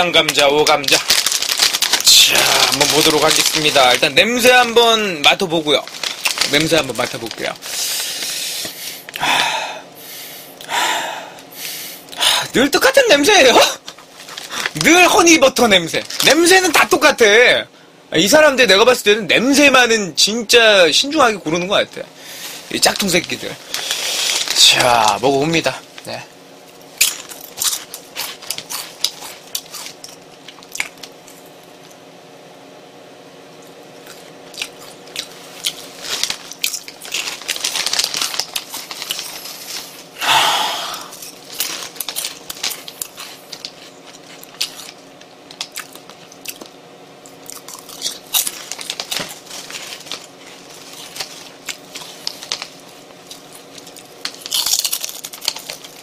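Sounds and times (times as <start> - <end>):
crunchy snack chewing: 0.7 - 4.0, 5.8 - 7.8, 26.8 - 32.0, 33.6 - 40.1, 40.9 - 56.0.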